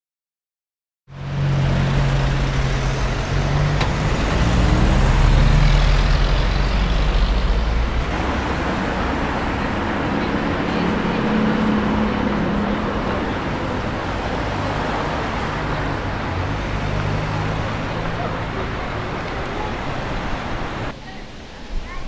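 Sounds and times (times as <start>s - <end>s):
car and bus engines humming: 1.1s - 21.0s
road noise: 1.1s - 22.0s.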